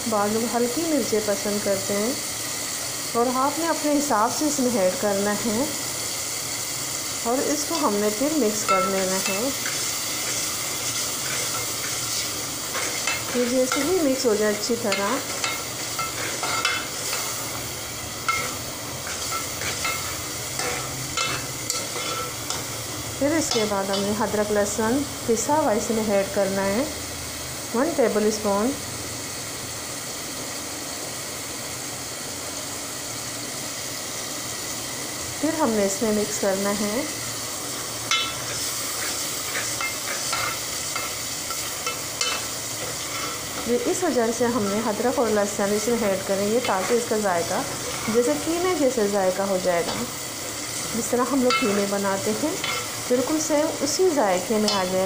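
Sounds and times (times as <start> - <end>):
vegetables sizzling: 0.0 - 55.0
metal spoon scraping pot: 18.3 - 22.6.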